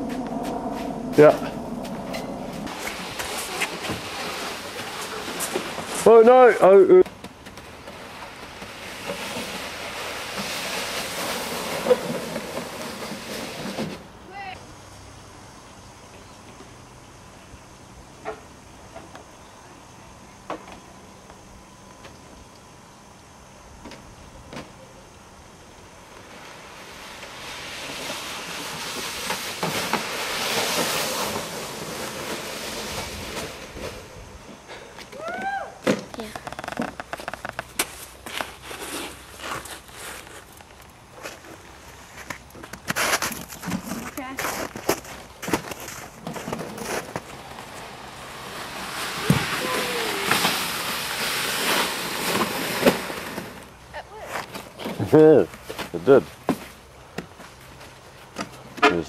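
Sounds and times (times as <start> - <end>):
sled sliding over snow: 0.0 - 14.6, 26.1 - 34.6, 36.2 - 56.8.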